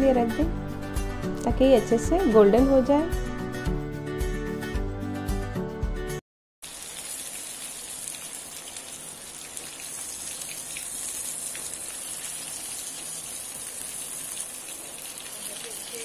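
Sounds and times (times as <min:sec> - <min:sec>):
fish frying in hot oil: 0:06.6 - 0:16.0.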